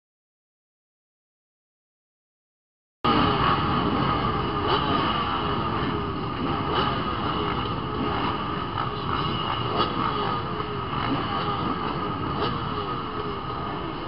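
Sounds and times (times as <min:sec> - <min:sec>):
motorcycle engines revving: 0:03.1 - 0:14.0.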